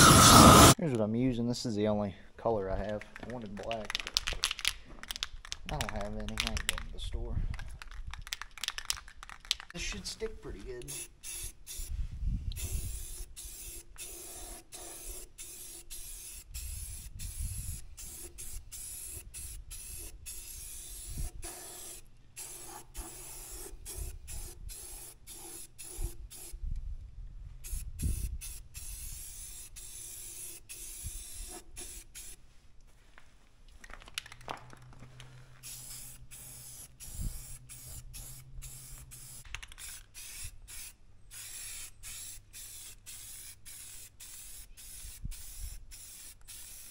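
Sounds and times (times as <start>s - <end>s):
spray paint can hissing: 0.0s - 0.8s, 10.8s - 26.6s, 27.6s - 32.4s, 35.6s - 46.9s.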